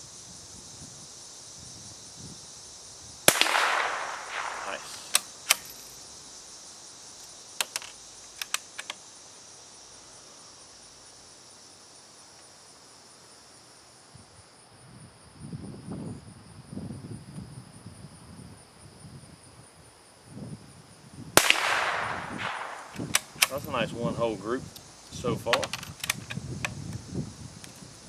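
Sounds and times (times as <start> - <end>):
insects chirring: 0.0 - 28.0
rifle bolt clicking: 21.5 - 23.5.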